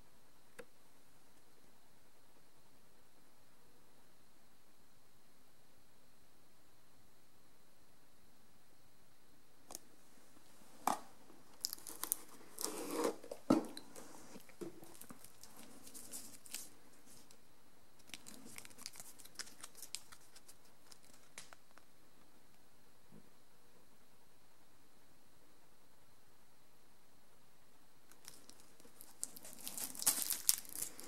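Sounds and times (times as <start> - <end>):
paper rustling: 11.6 - 17.4, 28.1 - 31.0.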